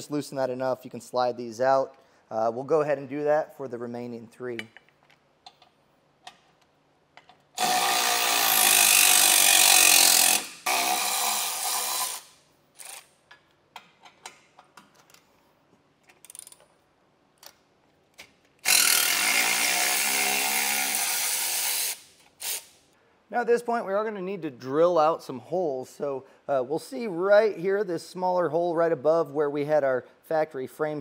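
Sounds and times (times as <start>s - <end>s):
electric ratchet running: 7.6s - 13.1s, 18.6s - 22.7s.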